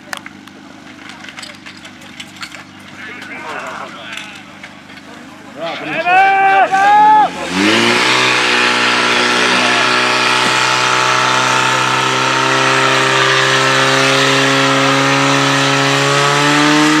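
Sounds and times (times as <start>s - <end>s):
small petrol engine high revs: 6.7s - 17.0s.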